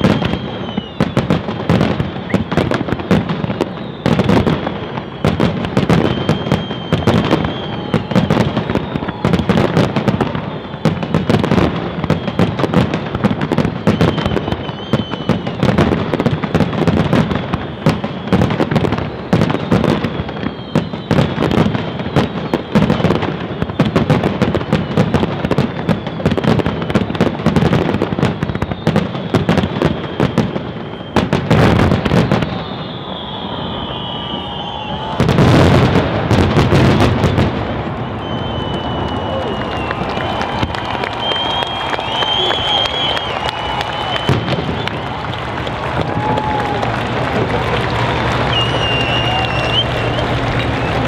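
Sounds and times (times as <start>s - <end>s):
fireworks bangs and crackles: 0.0s - 51.0s
deep rumble: 45.5s - 51.0s.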